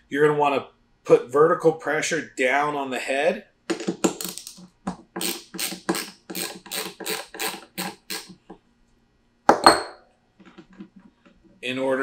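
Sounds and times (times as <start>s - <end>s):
ratchet clicking: 5.2s - 8.4s.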